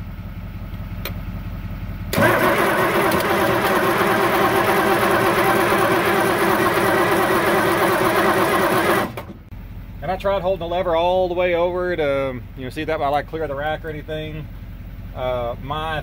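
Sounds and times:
diesel engine cranking without firing: 2.0s - 9.5s.

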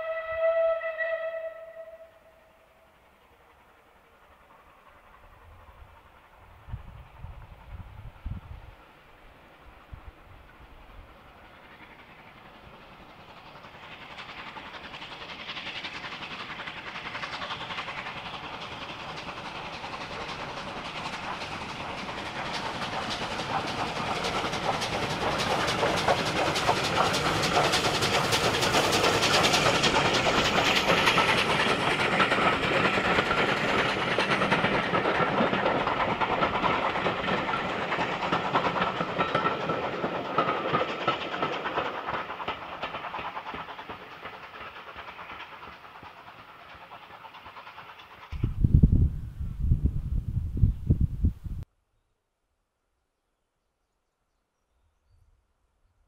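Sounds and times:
steam train passing: 0.0s - 51.7s
rail clatter: 11.6s - 48.9s.

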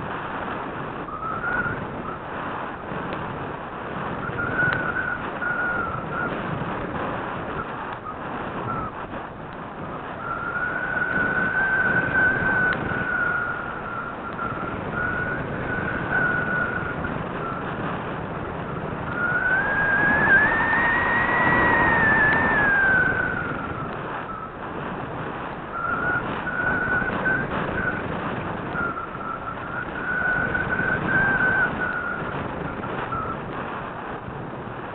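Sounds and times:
airflow rushing past camera: 0.0s - 34.9s
thin whistling tone: 1.0s - 2.4s, 4.2s - 6.6s, 7.6s - 9.0s, 9.9s - 17.9s, 18.6s - 24.6s, 25.7s - 33.4s.

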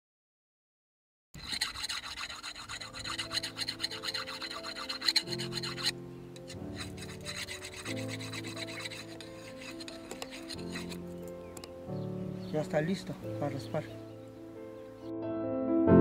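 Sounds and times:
metal scraping on metal: 1.4s - 11.7s
low sustained music notes: 2.5s - 16.0s.

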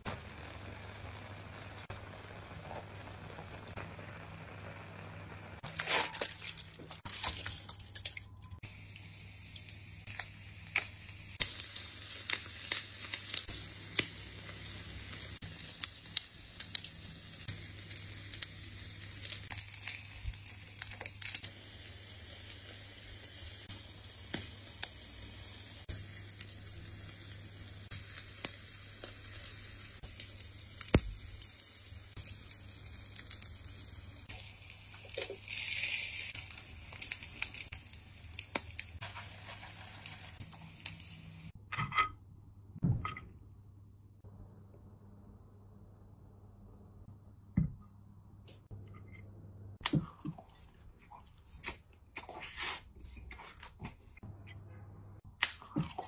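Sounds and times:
food sizzling on a grill: 0.0s - 5.6s, 8.6s - 41.6s
aluminium foil crinkling: 5.6s - 8.5s, 32.2s - 41.5s.

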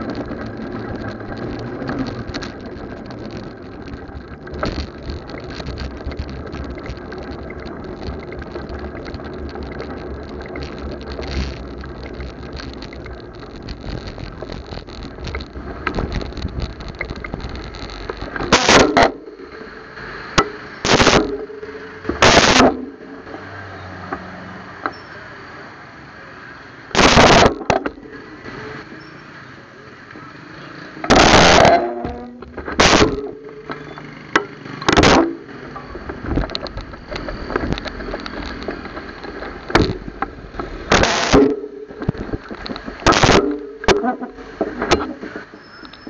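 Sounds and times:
rustling bumps on microphone: 0.0s - 18.7s
street noise: 0.0s - 46.0s.

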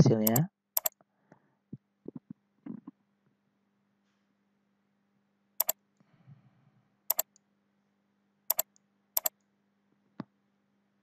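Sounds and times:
computer mouse clicking: 0.2s - 1.0s, 7.1s - 7.4s, 8.5s - 9.4s.

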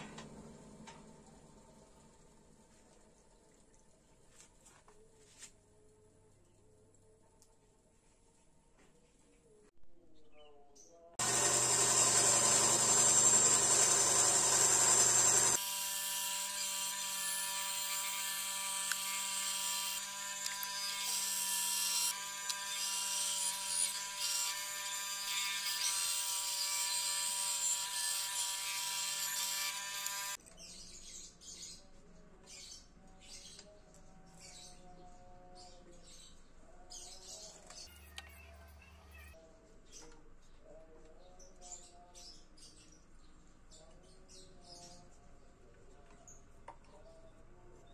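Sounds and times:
bandsaw cutting wood: 11.2s - 30.4s.

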